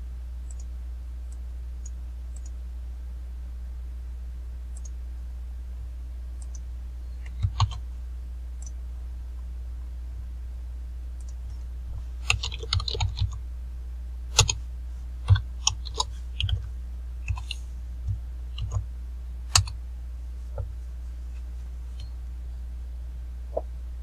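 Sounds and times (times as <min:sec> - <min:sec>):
steady low hum: 0:00.0 - 0:24.0
computer keyboard typing: 0:07.2 - 0:07.8, 0:12.2 - 0:13.4, 0:14.3 - 0:14.6, 0:15.3 - 0:16.7, 0:17.3 - 0:18.8, 0:19.5 - 0:19.8.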